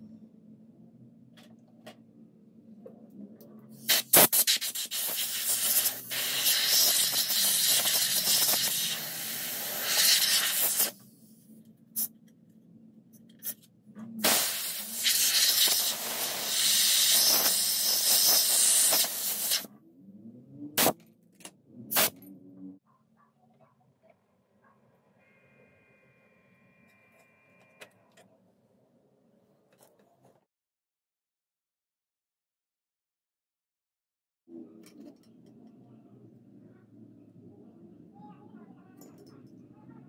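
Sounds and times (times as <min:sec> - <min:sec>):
compressed air blasts: 0:03.8 - 0:11.0, 0:14.2 - 0:19.7, 0:20.8 - 0:21.0, 0:21.9 - 0:22.2.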